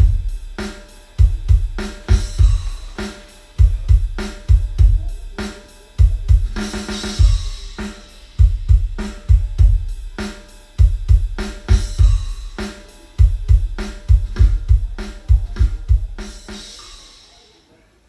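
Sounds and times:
deep kick-drum thumps: 0.0s - 0.4s, 1.2s - 5.3s, 6.0s - 10.2s, 10.8s - 12.6s, 13.2s - 16.3s
drum-heavy music: 0.0s - 17.6s
cymbals and hi-hat: 0.0s - 17.7s.

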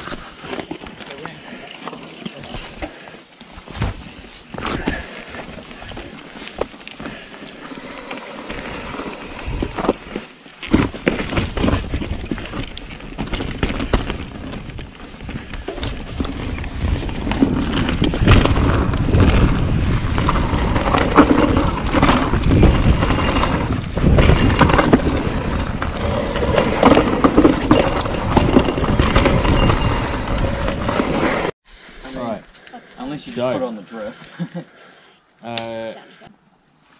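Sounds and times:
wind rushing over microphone: 8.6s - 10.0s, 13.6s - 31.5s
tyres crunching over dirt and stone: 9.5s - 31.1s
bike clattering over bumps: 9.7s - 31.5s.

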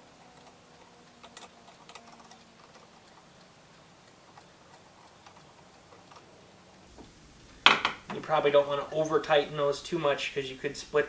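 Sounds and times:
screwdriver clicking: 0.0s - 6.3s.

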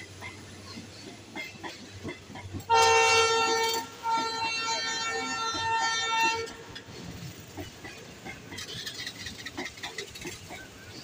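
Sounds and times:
train wheels clicking over rails: 0.0s - 11.0s
train horn: 2.7s - 6.8s.

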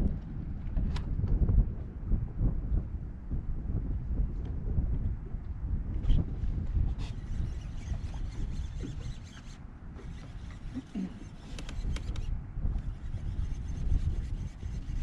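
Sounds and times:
wind buffeting microphone: 0.0s - 15.0s
faint clicks and ticks: 7.1s - 15.0s.

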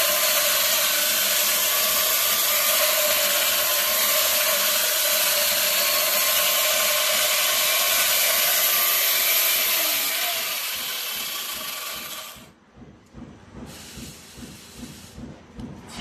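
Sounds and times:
electric chainsaw cutting stone: 0.0s - 12.5s.

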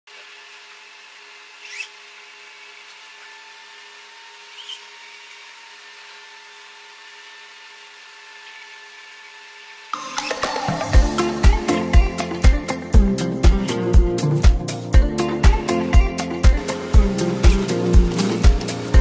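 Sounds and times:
rising motor whirs: 0.4s - 11.0s
robot motors whining: 1.4s - 10.9s.

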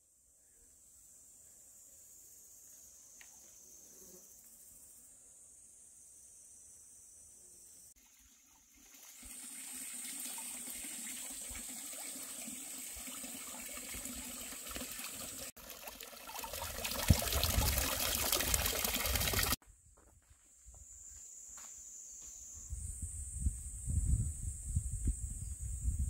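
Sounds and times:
water splashing into stone basin: 8.0s - 19.6s.

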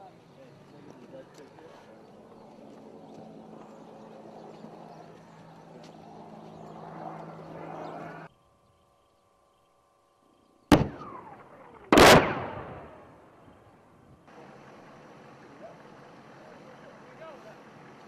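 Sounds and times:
low outdoor rumble: 0.0s - 18.0s
explosion blasts: 10.7s - 13.2s.

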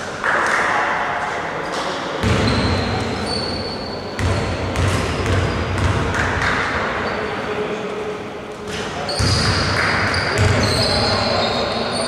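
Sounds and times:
echoing hall noise: 0.0s - 12.0s
basketball bouncing on court: 2.2s - 3.4s, 4.2s - 6.8s, 9.1s - 10.8s
high shoe squeaks: 2.4s - 4.4s, 9.1s - 12.0s.

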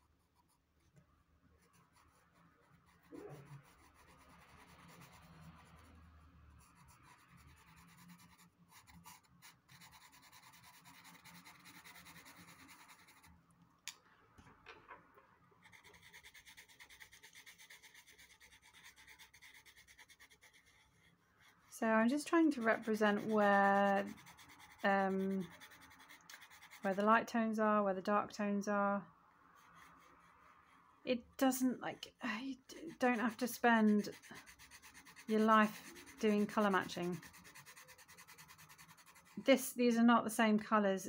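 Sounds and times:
pencil scratching on paper: 1.6s - 13.3s, 15.6s - 27.1s, 29.5s - 30.8s, 32.7s - 39.6s.

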